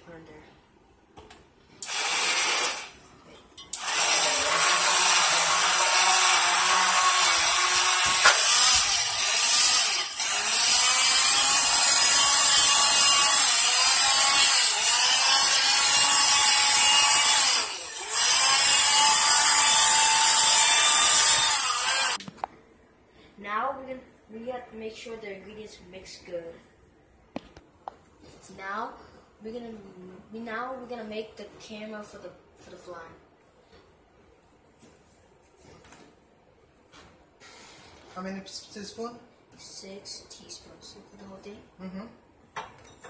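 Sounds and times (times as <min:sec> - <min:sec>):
electric stick blender whirring: 0:01.8 - 0:03.0, 0:03.7 - 0:22.2.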